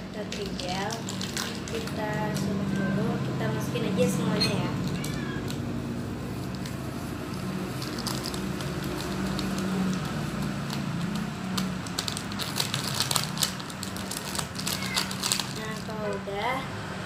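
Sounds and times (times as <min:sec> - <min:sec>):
packet crinkling: 0:00.3 - 0:02.8, 0:04.7 - 0:05.7, 0:06.4 - 0:16.2.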